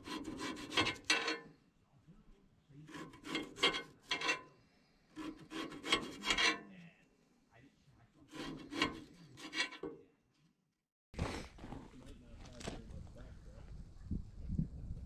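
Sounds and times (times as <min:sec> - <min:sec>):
knife sawing through potatoes: 0:00.0 - 0:01.2, 0:02.8 - 0:04.4, 0:05.1 - 0:06.7, 0:08.3 - 0:09.9
knife scraping cutting board: 0:00.0 - 0:01.4, 0:02.9 - 0:04.4, 0:05.2 - 0:06.7, 0:08.3 - 0:09.9.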